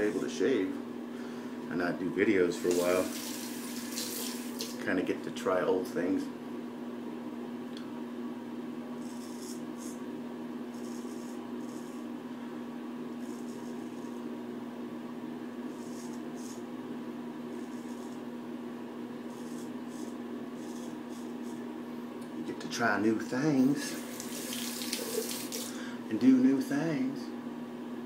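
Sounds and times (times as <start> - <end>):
steady low hum: 0.0 - 28.0
razor scraping stubble: 9.0 - 10.0, 10.7 - 12.1, 17.5 - 18.2, 19.3 - 21.7.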